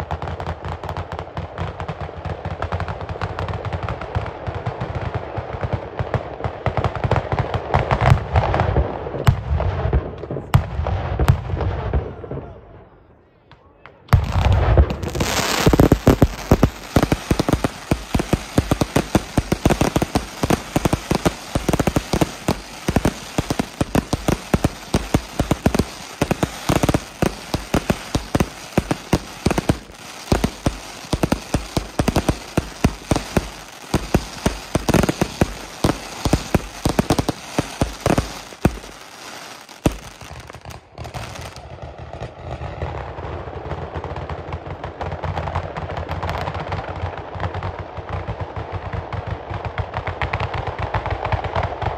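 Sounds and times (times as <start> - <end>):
firecracker bangs and crackling: 0.0 - 12.3, 14.1 - 51.9.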